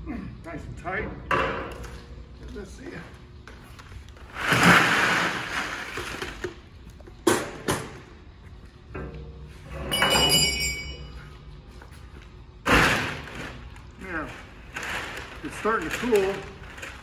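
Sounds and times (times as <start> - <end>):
ice cubes poured into plastic pool: 4.3 - 6.4
steel drum ringing: 9.8 - 11.1.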